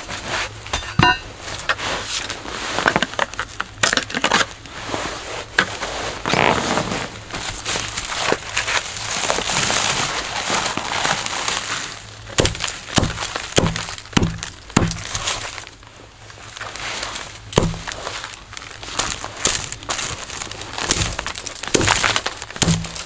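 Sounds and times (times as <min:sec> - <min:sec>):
twigs rustling and scraping: 0:00.0 - 0:23.0
hatchet chopping twigs: 0:12.4 - 0:15.4, 0:17.5 - 0:18.0, 0:20.8 - 0:23.0.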